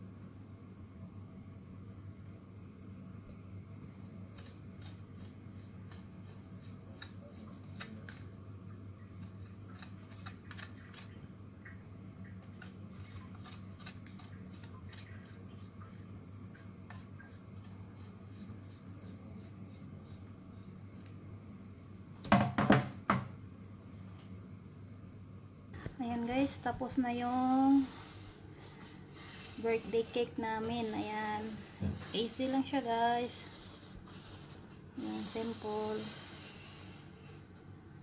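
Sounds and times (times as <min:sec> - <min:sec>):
low steady hum: 0:00.0 - 0:38.0
chocolate shaving scrapes: 0:04.3 - 0:08.3, 0:09.2 - 0:11.2, 0:12.6 - 0:21.1, 0:27.4 - 0:37.1.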